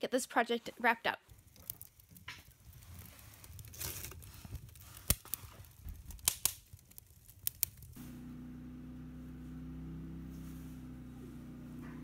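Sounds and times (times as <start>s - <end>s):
fire popping: 0.1s - 8.3s
fire crackling and hissing: 0.1s - 11.7s.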